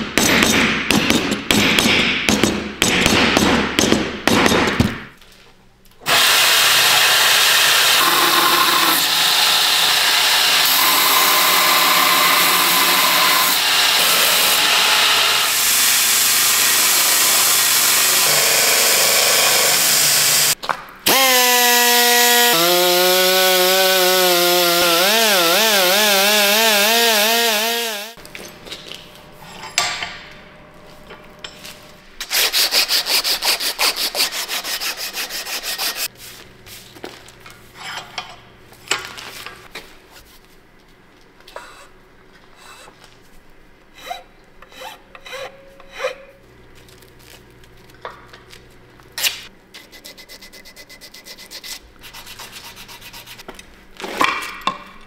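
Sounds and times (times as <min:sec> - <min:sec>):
rotary sanding tool whining: 0:06.2 - 0:28.2
hand sanding wood: 0:32.2 - 0:36.1, 0:49.8 - 0:53.4.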